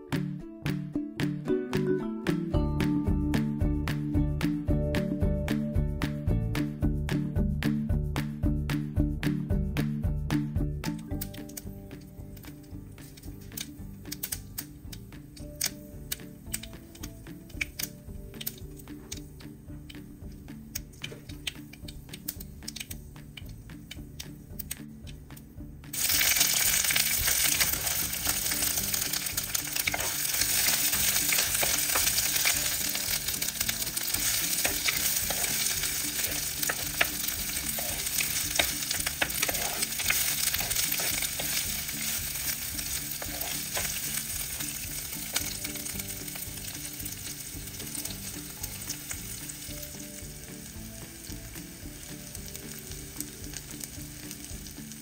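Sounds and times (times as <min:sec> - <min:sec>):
onions sizzling in hot oil: 0:25.9 - 0:55.0.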